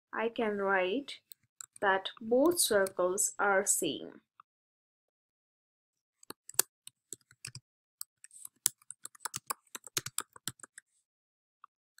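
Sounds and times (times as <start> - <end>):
computer keyboard typing: 6.2 - 10.8.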